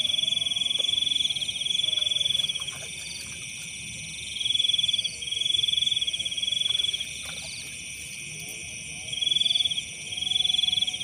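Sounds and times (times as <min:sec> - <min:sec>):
insects ringing: 0:00.0 - 0:11.0.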